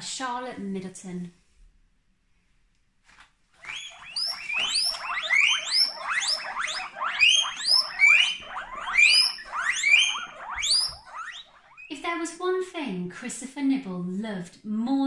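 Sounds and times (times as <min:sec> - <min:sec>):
guinea pig squealing: 0:03.6 - 0:12.4.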